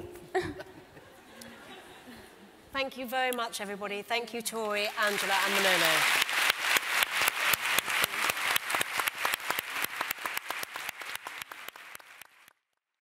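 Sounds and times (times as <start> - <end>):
audience applauding: 4.8 - 12.6.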